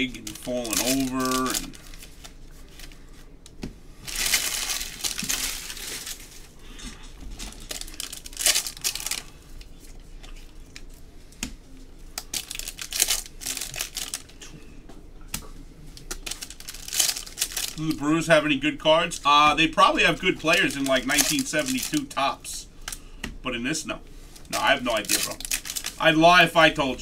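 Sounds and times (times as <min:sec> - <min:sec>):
foil wrappers crinkling and tearing: 0:00.0 - 0:03.2, 0:04.0 - 0:11.0, 0:12.2 - 0:14.5, 0:15.9 - 0:18.3, 0:19.1 - 0:23.0, 0:24.4 - 0:26.9.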